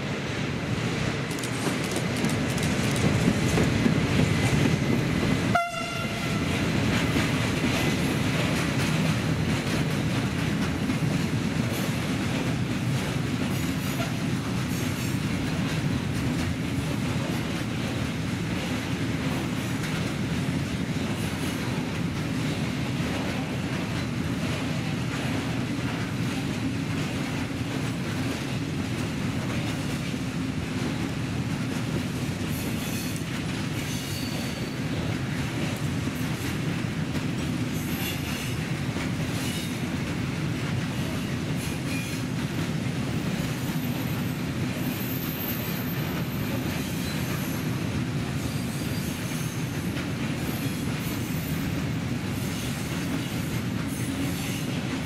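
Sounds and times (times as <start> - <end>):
freight train passing: 0.0 - 55.0
train horn blast: 5.5 - 6.6.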